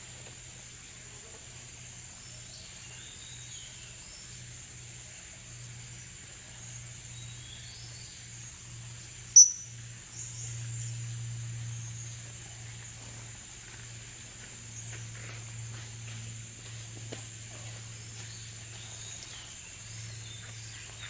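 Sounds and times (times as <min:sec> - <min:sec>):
forest insects droning: 0:00.0 - 0:21.0
loud shrill bird call: 0:09.4 - 0:09.7
parrots chirping: 0:09.4 - 0:09.7.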